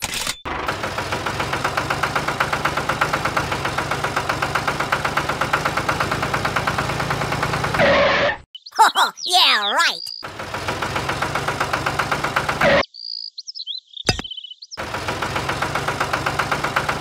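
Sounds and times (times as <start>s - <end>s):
tractor engine idling: 0.5s - 7.8s, 10.2s - 12.7s, 14.8s - 17.0s.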